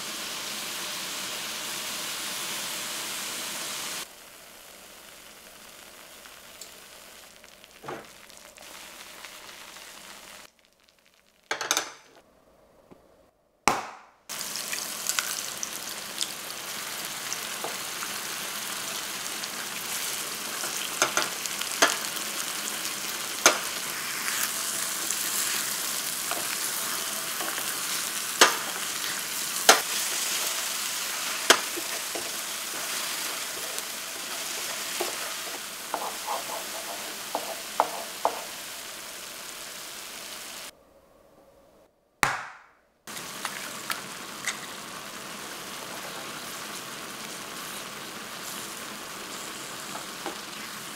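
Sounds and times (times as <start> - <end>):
food sizzling in oil: 0.0 - 11.5, 14.3 - 40.7, 43.1 - 50.9
wooden spatula scraping pan: 31.2 - 38.5.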